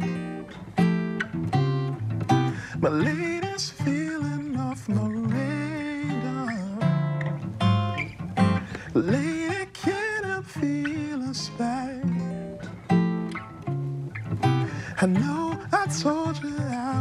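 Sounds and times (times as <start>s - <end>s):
fingerstyle acoustic guitar: 0.0s - 17.0s
man singing wordlessly: 2.6s - 7.4s, 8.7s - 12.8s, 14.7s - 17.0s.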